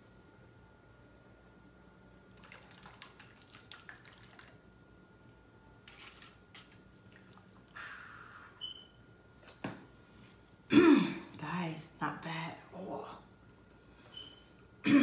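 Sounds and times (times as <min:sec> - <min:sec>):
faint room hum: 0:00.0 - 0:15.0.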